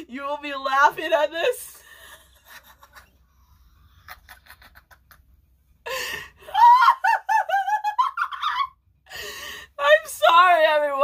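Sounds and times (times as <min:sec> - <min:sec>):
boy laughing: 0:04.1 - 0:05.3.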